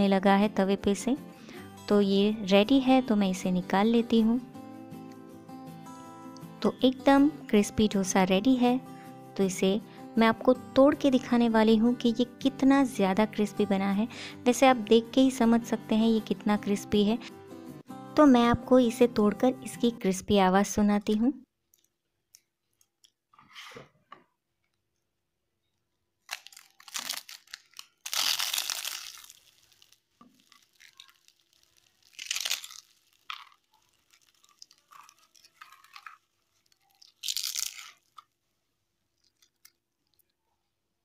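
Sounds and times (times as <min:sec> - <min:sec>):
crisp pancake crunching and crackling: 0:26.2 - 0:40.4.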